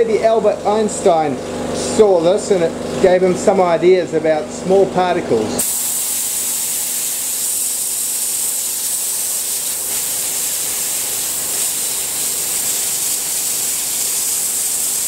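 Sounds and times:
compressed air blow gun hissing: 5.6s - 15.0s.

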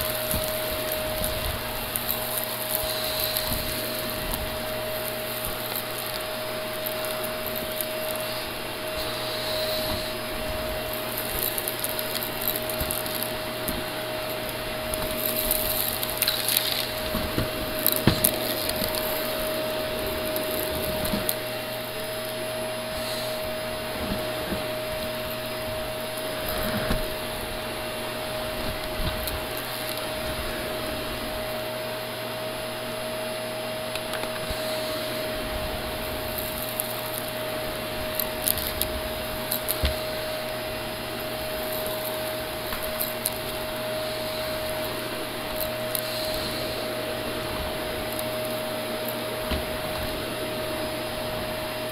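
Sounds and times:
clicks and crackles: 0.0s - 27.6s, 28.4s - 30.4s, 33.8s - 35.0s, 36.0s - 50.3s
vacuum cleaner motor whine: 0.0s - 51.9s.

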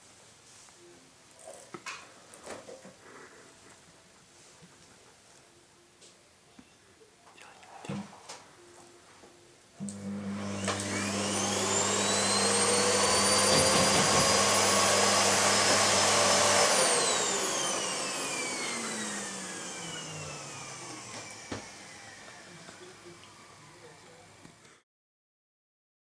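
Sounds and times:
vacuum cleaner motor whine: 9.8s - 24.8s.

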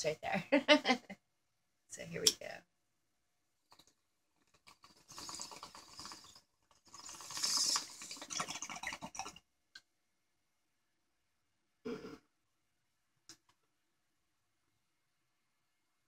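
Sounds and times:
water bubbling in bong: 4.5s - 9.4s.

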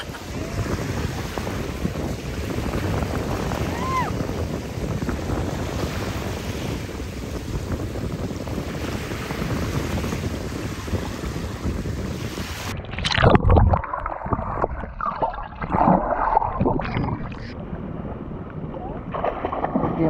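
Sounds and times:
small waves lapping on shore: 0.0s - 12.8s
wind buffeting microphone: 0.0s - 15.1s, 15.7s - 20.0s.

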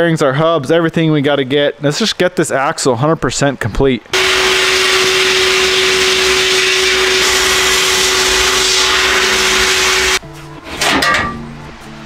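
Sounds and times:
sandblaster hissing: 4.2s - 10.2s.

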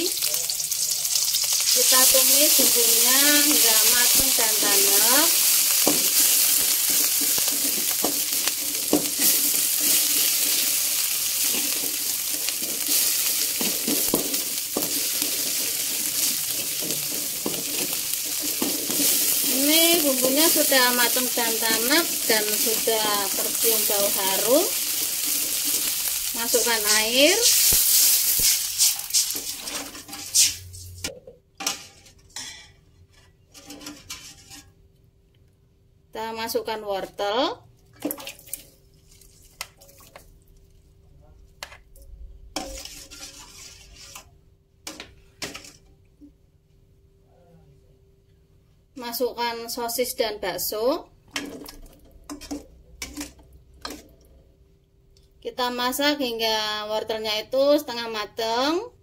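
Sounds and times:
paste sizzling in hot oil: 0.0s - 31.0s, 42.6s - 44.3s
metal spatula scraping wok: 1.1s - 34.8s, 42.5s - 45.9s, 52.3s - 54.2s.

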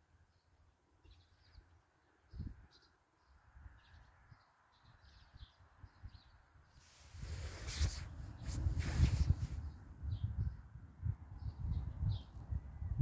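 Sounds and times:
small birds chirping: 0.2s - 10.6s, 11.3s - 12.8s
low wind rumble: 3.4s - 13.0s.

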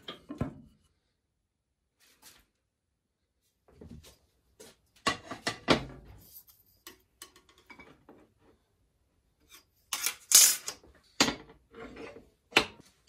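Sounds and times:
metal scraping across table: 11.7s - 12.3s.

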